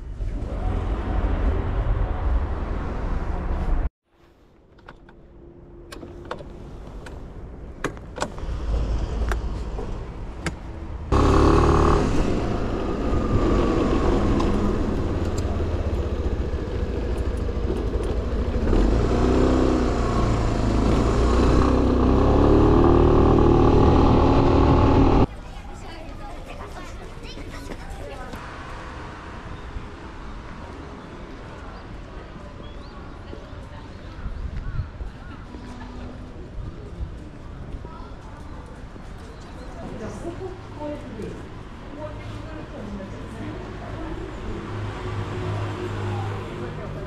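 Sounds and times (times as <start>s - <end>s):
scooter engine rumbling: 11.1s - 25.3s.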